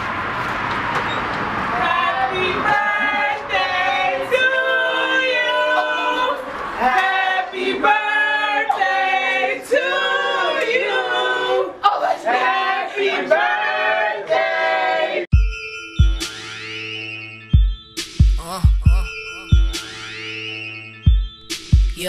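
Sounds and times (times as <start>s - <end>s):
group singing without instruments: 1.7s - 15.3s.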